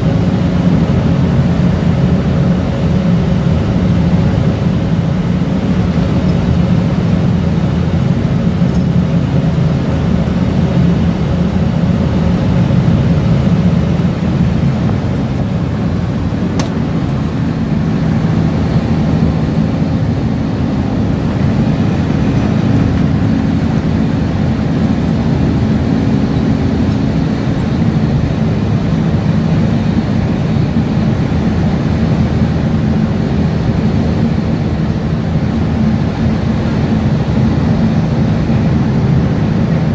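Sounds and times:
ship engines droning: 0.0 - 39.9
sharp click: 16.6 - 16.8.

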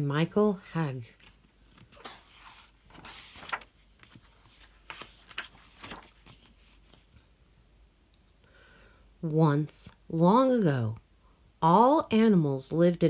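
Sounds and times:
book pages rustling: 1.1 - 7.3.

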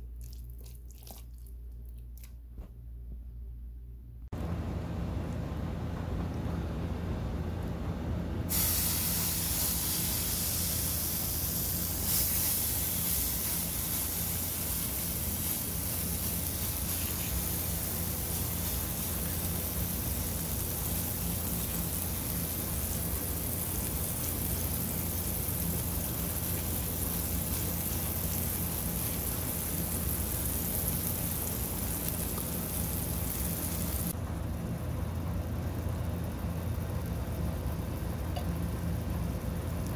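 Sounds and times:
patty sizzling in hot oil: 8.5 - 34.2.

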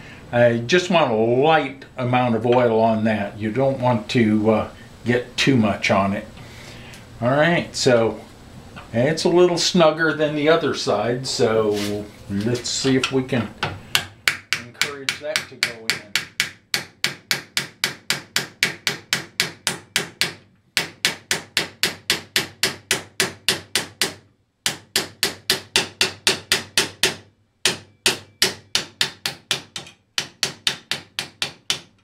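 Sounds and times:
hammer tapping on metal: 12.9 - 32.0.

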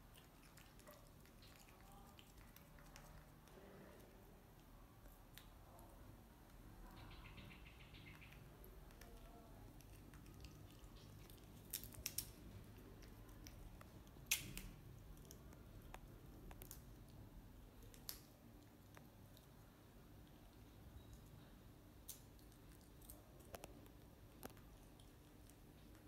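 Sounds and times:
faint room hiss: 0.0 - 26.0
monkey chewing crisp food: 0.1 - 4.1, 8.8 - 16.8.

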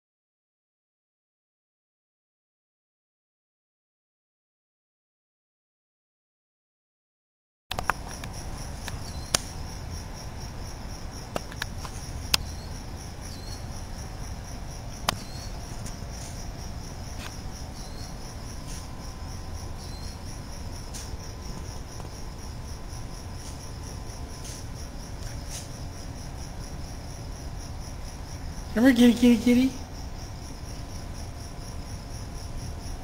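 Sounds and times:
sharp clicks: 7.7 - 9.5
crickets chirping: 7.7 - 33.0.

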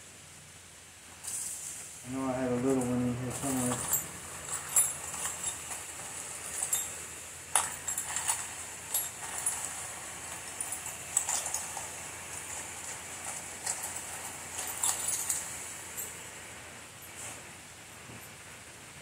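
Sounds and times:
metal bits clinking in plastic tub: 2.8 - 16.2.

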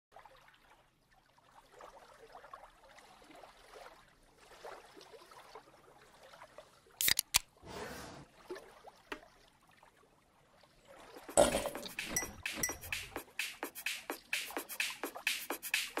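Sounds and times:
can opening hiss: 7.0 - 7.4
can pull tab clicking: 7.0 - 7.4
drink fizzing and crackling: 11.1 - 12.4.

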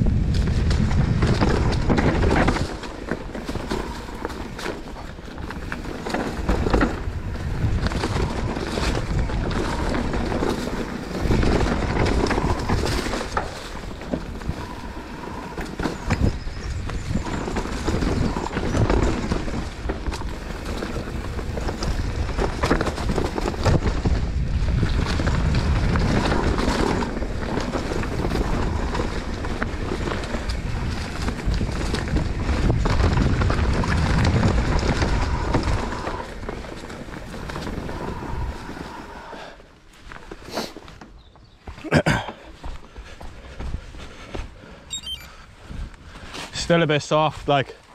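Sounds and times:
wind on microphone: 0.0 - 36.6
bike knocking and rattling: 0.0 - 38.1
bike tyres rolling over dirt: 0.0 - 44.7.

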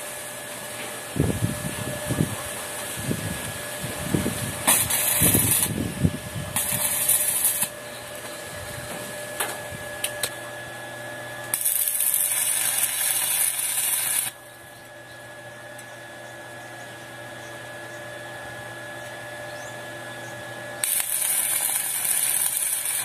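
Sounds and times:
welding arc crackling and sizzling: 0.0 - 10.4, 11.4 - 14.5, 20.8 - 23.0.

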